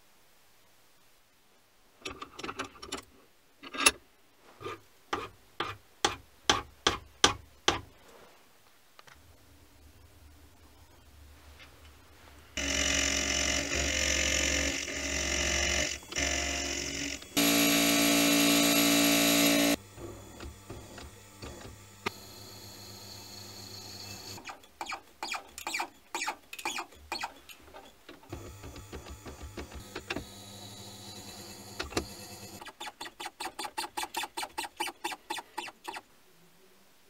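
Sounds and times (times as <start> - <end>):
milling machine cutting metal: 12.6 - 24.4.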